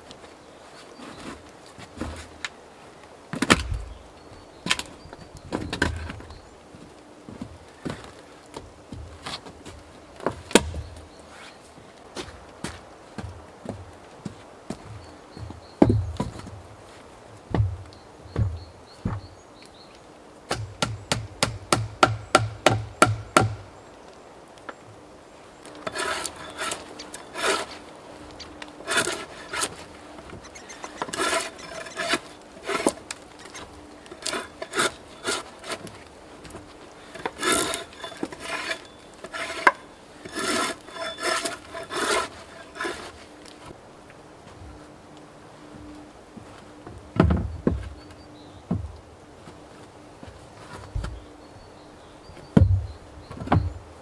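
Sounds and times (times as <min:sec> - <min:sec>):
rough scraping on wood: 0:25.7 - 0:43.6.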